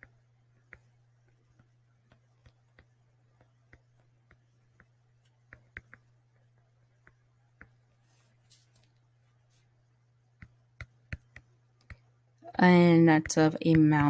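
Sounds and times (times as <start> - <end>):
low steady hum: 0.0 - 14.0
stylus tapping on tablet screen: 0.0 - 14.0.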